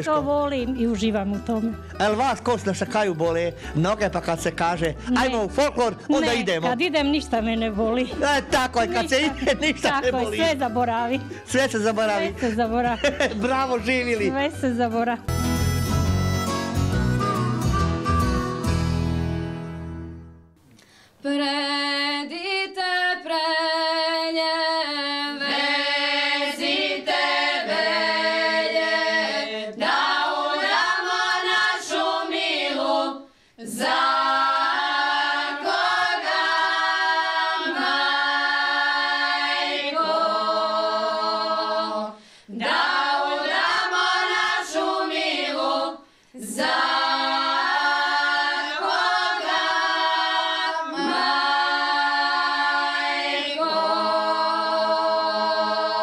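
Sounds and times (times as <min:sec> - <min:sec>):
women singing a cappella: 0:21.2 - 0:56.0.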